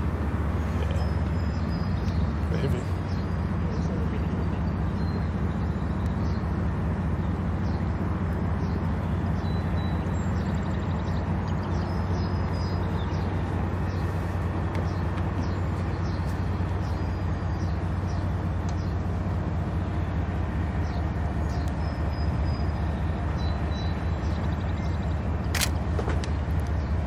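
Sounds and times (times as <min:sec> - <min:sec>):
birds chirping: 0:00.0 - 0:27.0
diesel locomotive engine droning: 0:00.0 - 0:27.0.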